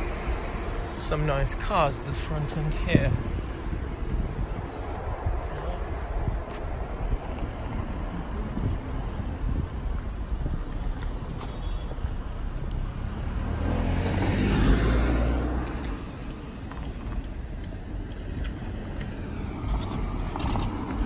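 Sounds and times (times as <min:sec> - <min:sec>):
car driving past: 0:11.8 - 0:16.1.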